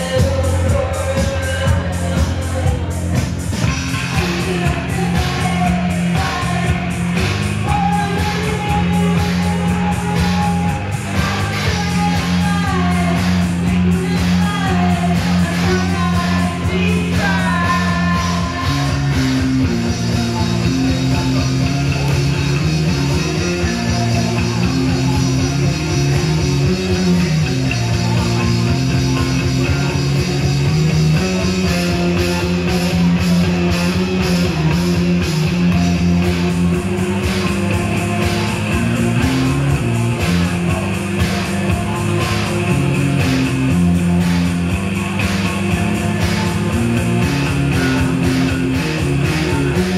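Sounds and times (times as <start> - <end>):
drums: 0.0 - 49.9
electric bass line: 0.0 - 49.9
keyboard: 0.0 - 49.9
woman singing: 4.2 - 19.2.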